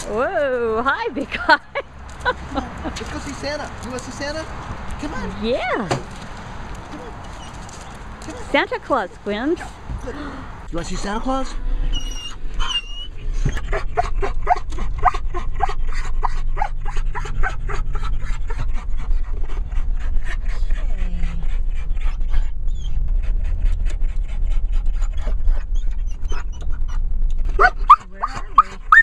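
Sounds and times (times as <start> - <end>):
car driving rumble: 0.0 - 29.0
dog whining and yipping: 6.9 - 8.5, 11.9 - 18.6, 22.0 - 23.1, 25.0 - 29.0.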